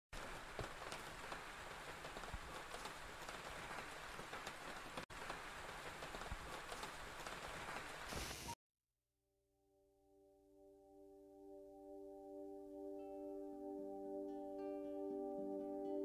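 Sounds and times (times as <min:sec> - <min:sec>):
raindrops ticking on surfaces: 0:00.2 - 0:08.4
steady rain falling: 0:00.2 - 0:08.6.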